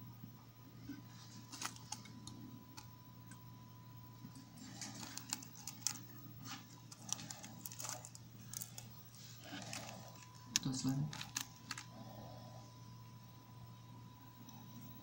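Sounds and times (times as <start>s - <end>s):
small clicks and crackles: 1.1s - 3.4s, 4.2s - 12.0s.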